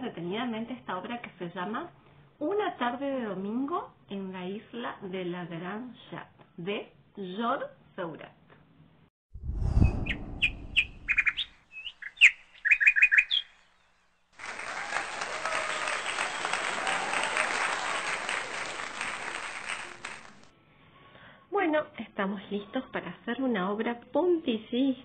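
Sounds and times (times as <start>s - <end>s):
low rumble: 9.4s - 11.4s
birds chirping: 9.7s - 14.0s.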